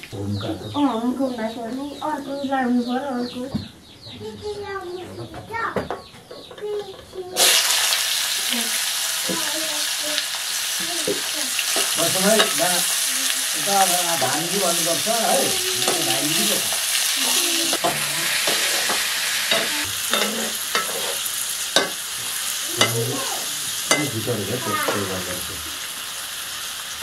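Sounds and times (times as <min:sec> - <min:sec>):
oil sizzling: 0:07.3 - 0:27.0
ladle scraping frying food: 0:07.4 - 0:25.2
ladle clinking against pan: 0:23.9 - 0:24.2.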